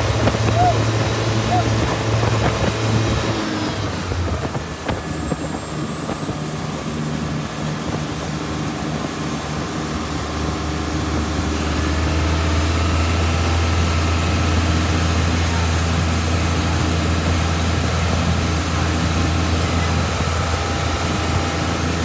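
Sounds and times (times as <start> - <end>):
turbo whistle: 0.0 - 4.0
boat diesel engine running: 0.0 - 22.0.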